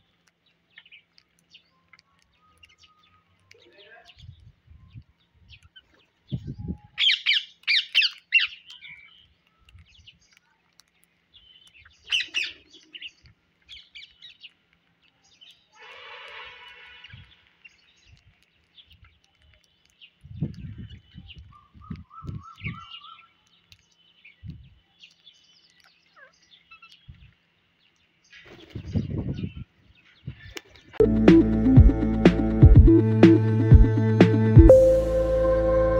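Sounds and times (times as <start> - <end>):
dull low thumps: 31.0 - 35.9.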